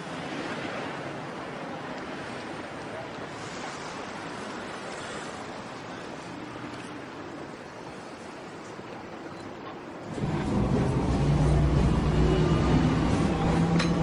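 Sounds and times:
city traffic: 0.0 - 14.0
cars passing close by: 10.1 - 14.0.

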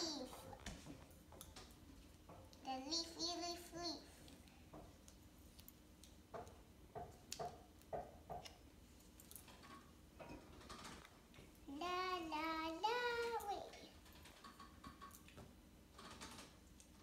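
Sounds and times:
child singing: 2.7 - 4.0, 11.7 - 13.9.

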